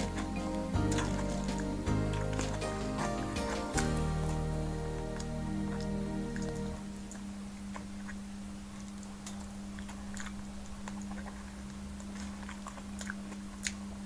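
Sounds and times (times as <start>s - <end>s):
person chewing with wet smacks: 0.0s - 14.0s
steady low hum: 0.0s - 14.0s.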